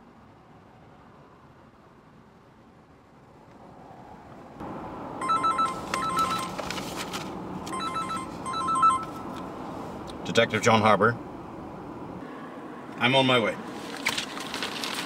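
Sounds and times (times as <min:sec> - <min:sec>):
phone ringtone trilling: 0:05.2 - 0:06.6, 0:07.7 - 0:09.3
newspaper rustling: 0:05.8 - 0:07.4, 0:13.7 - 0:15.0.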